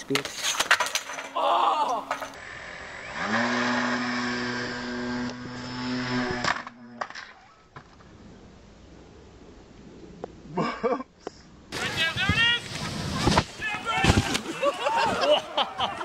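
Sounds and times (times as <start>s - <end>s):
person shouting: 1.4s - 2.1s
model glider whining: 2.1s - 6.8s.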